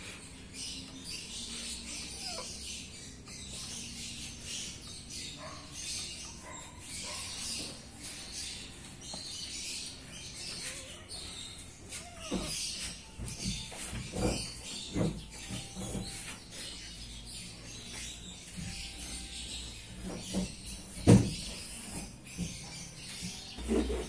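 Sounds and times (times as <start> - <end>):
high chirping: 0.0 - 24.0
kittens play-fighting: 1.6 - 3.2, 10.2 - 16.7.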